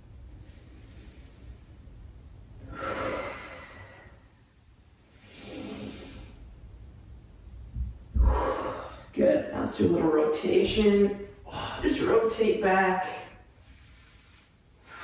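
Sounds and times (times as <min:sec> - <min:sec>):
man breathing deeply: 0:02.6 - 0:04.4, 0:05.0 - 0:06.4, 0:08.1 - 0:09.1, 0:13.6 - 0:15.0.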